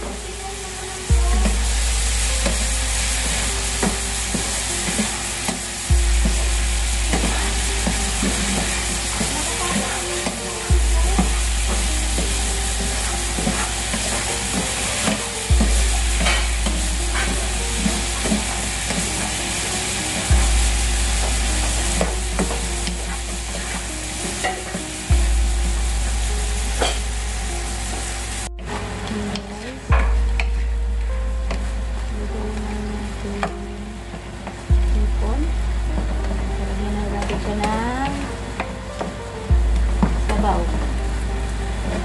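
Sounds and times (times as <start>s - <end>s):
shrimp sizzling in a pan: 0.0s - 42.0s
deep hum with thump: 1.1s - 9.4s, 10.7s - 14.7s, 15.5s - 19.1s, 20.3s - 27.7s, 29.9s - 33.8s, 34.7s - 38.1s, 39.5s - 42.0s.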